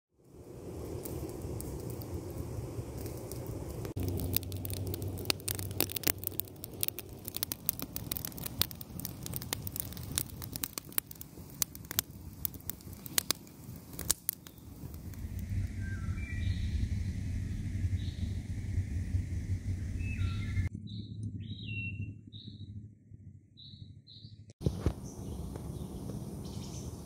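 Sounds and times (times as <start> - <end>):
campfire crackling: 0.1 - 20.2
low rumble: 0.2 - 27.0.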